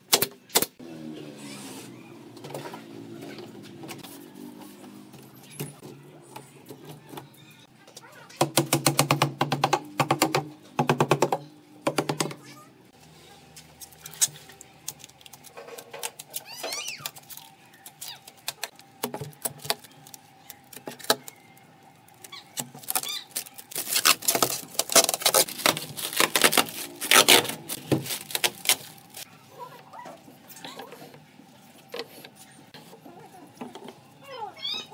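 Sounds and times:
plastic film crackling: 13.6s - 29.3s.

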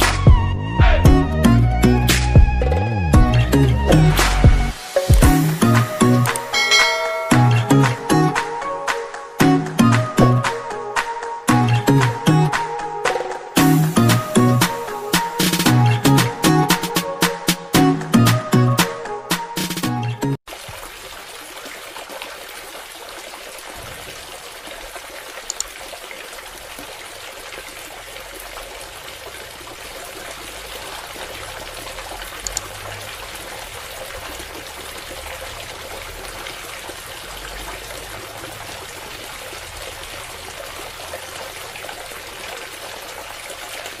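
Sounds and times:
water pouring onto ground: 4.0s - 6.7s, 20.5s - 44.0s.

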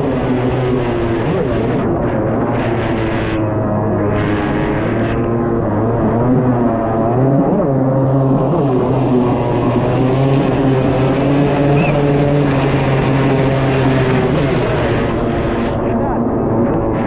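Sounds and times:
two-stroke engine running: 0.0s - 15.8s
water rushing: 5.7s - 15.8s.

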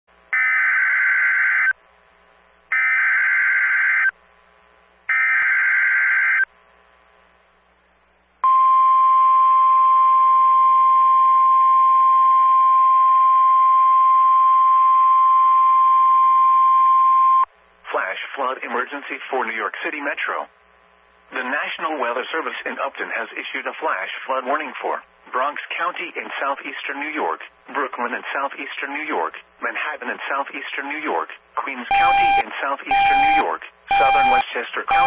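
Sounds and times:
digital data bursts: 31.9s - 35.0s
steady warning alarm tone: 31.9s - 35.0s.

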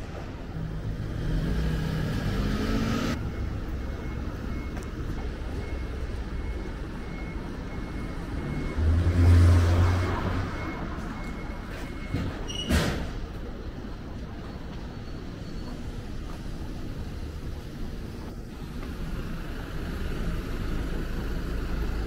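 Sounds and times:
road noise: 0.0s - 22.0s
truck engine hum: 0.0s - 22.0s
vehicle engine accelerating: 0.6s - 3.4s, 8.0s - 11.3s.

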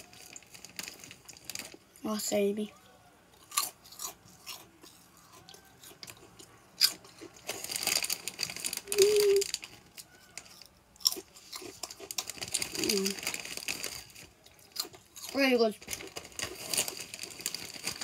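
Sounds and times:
person chewing crunchy snack: 3.4s - 18.0s
person humming: 8.9s - 9.5s.

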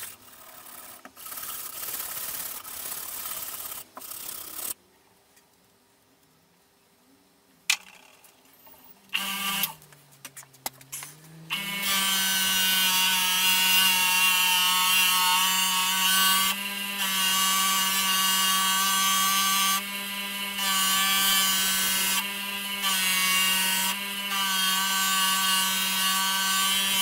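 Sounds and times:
bench grinder humming: 9.2s - 9.8s, 11.0s - 27.0s.

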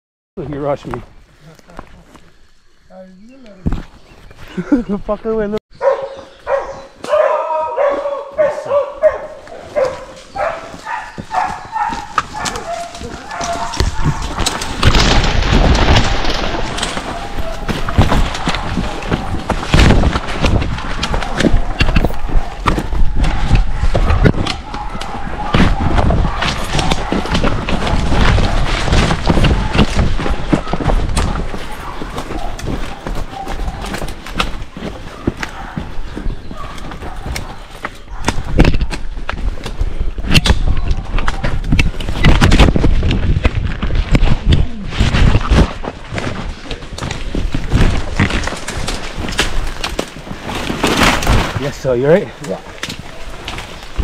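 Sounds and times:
running footsteps through undergrowth: 0.5s - 54.0s
camera rubbing against clothing: 8.4s - 39.1s
rustling snapping vegetation: 9.4s - 54.0s.

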